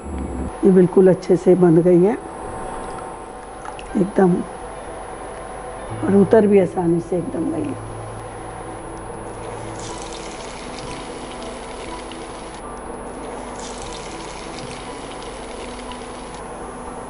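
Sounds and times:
food deep-frying in hot oil: 0:09.4 - 0:12.6, 0:13.2 - 0:16.4.

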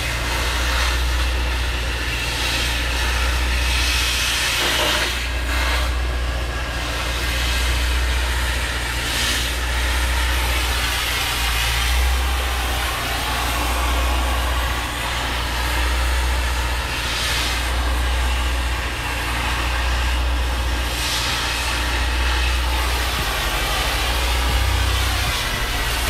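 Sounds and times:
cutting torch hissing: 0:00.0 - 0:26.0
low hum: 0:05.4 - 0:26.0.

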